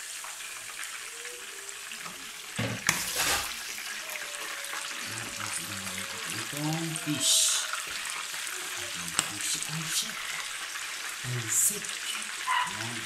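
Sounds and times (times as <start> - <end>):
food sizzling in oil: 0.0 - 13.0
pan clattering and scraping: 2.6 - 3.6.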